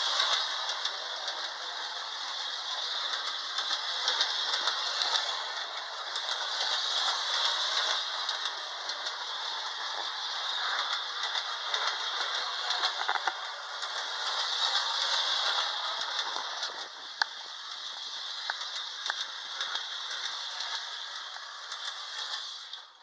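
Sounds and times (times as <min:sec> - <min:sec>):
toy train motor and wheels rattling: 0:00.0 - 0:23.0.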